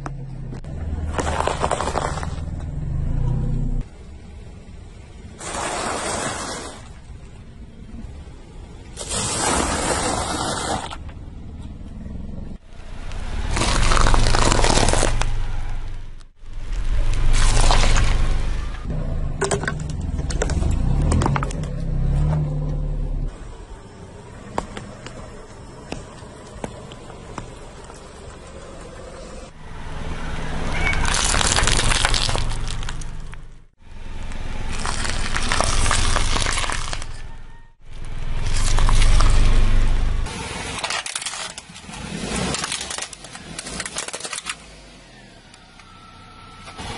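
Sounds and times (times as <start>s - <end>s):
tyre noise on concrete: 0.0s - 2.8s, 8.9s - 11.9s
low engine hum: 0.0s - 9.0s, 11.0s - 40.7s
tyre crunching small objects: 0.6s - 2.8s, 12.8s - 22.5s, 30.8s - 44.8s
tyre crunching dry noodles: 1.0s - 2.5s, 13.1s - 15.4s, 16.6s - 18.5s, 30.9s - 33.4s, 34.6s - 37.2s, 38.0s - 39.6s.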